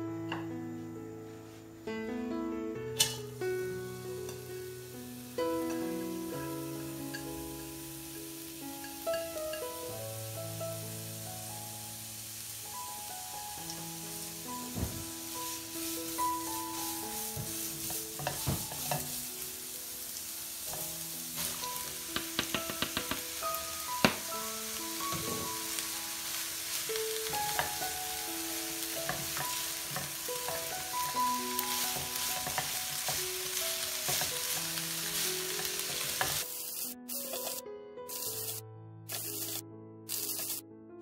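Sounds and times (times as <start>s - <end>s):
vegetables sizzling in a wok: 3.0s - 40.6s
spatula clicking and scraping pan: 16.8s - 19.2s, 21.4s - 23.2s, 29.0s - 30.7s, 31.7s - 33.2s, 34.0s - 36.4s.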